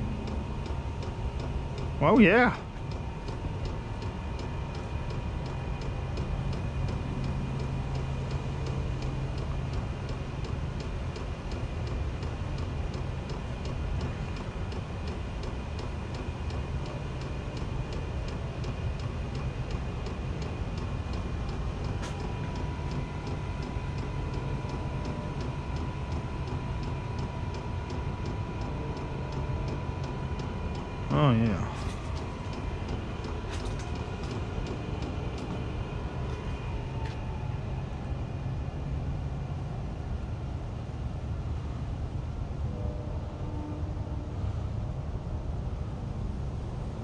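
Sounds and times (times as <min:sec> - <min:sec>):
heater humming: 0:00.0 - 0:43.8
fuel pump ticking: 0:31.7 - 0:37.2.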